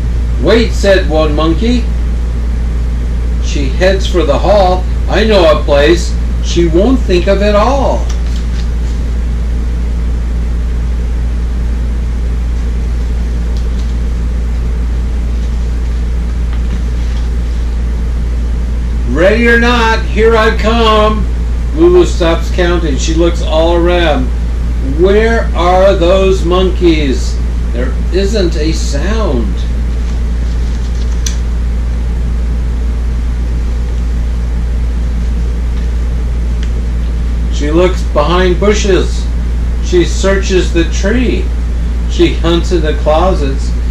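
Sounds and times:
low mechanical hum: 0:00.0 - 0:43.9
faint ticks of book handling: 0:08.1 - 0:09.0, 0:13.3 - 0:14.0, 0:16.5 - 0:17.7, 0:30.0 - 0:31.4.

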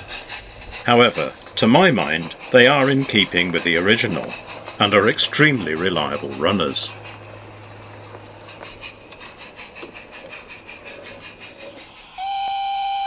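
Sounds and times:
model train coaches ticking on track: 0:00.0 - 0:13.0
steady high tone: 0:12.1 - 0:13.0.

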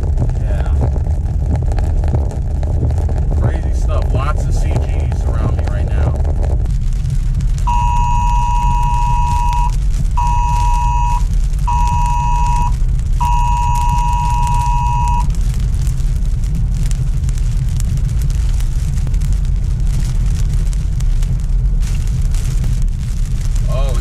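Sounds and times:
low road rumble inside car: 0:00.0 - 0:24.0
rain pattering on windshield: 0:00.0 - 0:24.0
emergency alert tones: 0:07.7 - 0:15.3.

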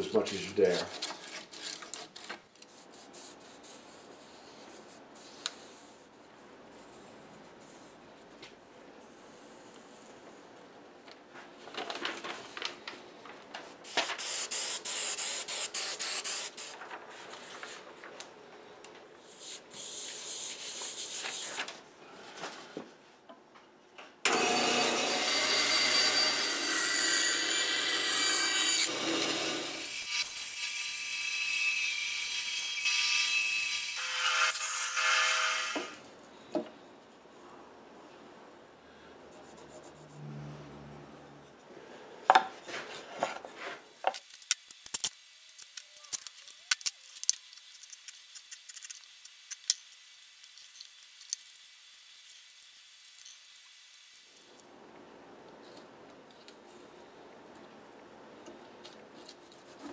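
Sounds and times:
band saw cutting: 0:24.3 - 0:36.0.

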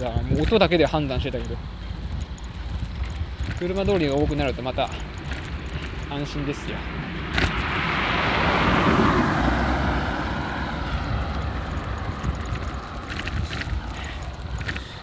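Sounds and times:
wind rush on microphone: 0:00.0 - 0:15.0
car passing close by: 0:07.1 - 0:13.0.

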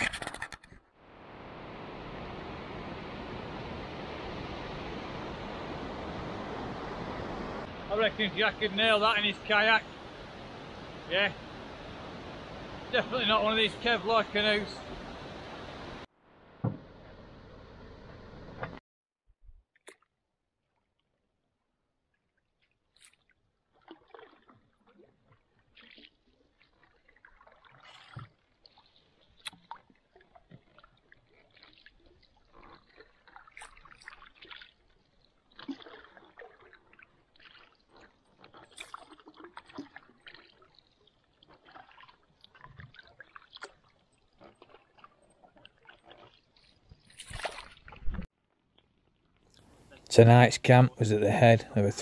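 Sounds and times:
paddles swishing through water: 0:00.0 - 0:18.8, 0:22.2 - 0:48.3
water dripping from paddles: 0:22.2 - 0:48.0.

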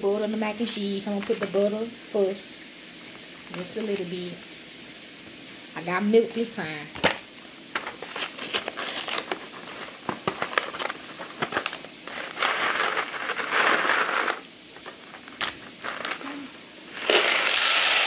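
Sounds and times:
packet rustling: 0:07.8 - 0:18.0
cardboard box crinkling and tearing: 0:08.1 - 0:13.9.

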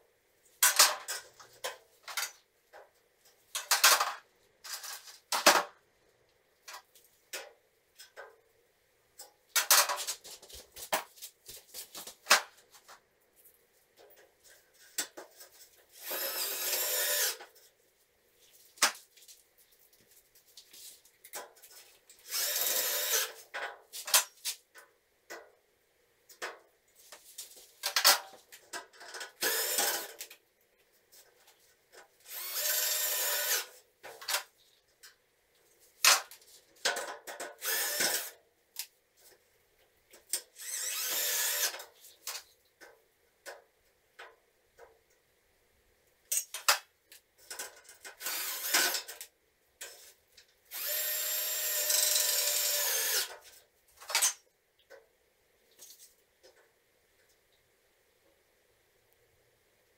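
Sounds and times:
cordless drill running: 0:16.0 - 0:17.4, 0:22.3 - 0:23.3, 0:29.4 - 0:30.1, 0:32.3 - 0:33.7, 0:37.6 - 0:38.3, 0:40.6 - 0:41.8, 0:48.2 - 0:49.0, 0:50.7 - 0:53.3.

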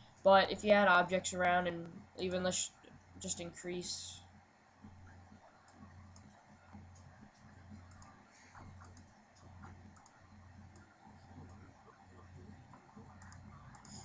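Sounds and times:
low hum: 0:00.0 - 0:14.0
computer mouse clicks: 0:05.6 - 0:11.6, 0:12.7 - 0:14.0.

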